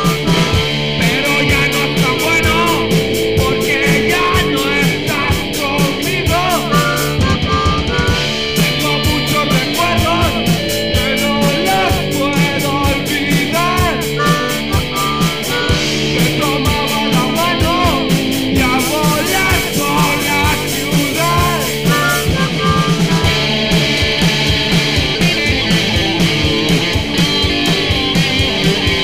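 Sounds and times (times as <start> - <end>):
fast drum beat with cymbals: 0.0 - 29.0
guitar: 0.0 - 29.0
harmonica phrases: 0.0 - 29.0.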